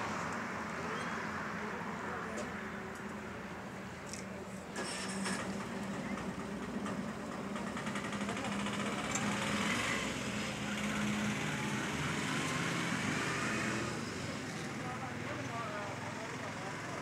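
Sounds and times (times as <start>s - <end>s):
street traffic noise: 0.0s - 17.0s
vehicle engine running: 5.2s - 13.3s.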